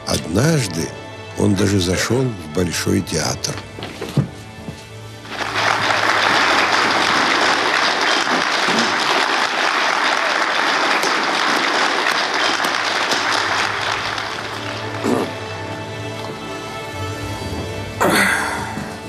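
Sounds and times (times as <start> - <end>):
audience applause: 5.2 - 16.2.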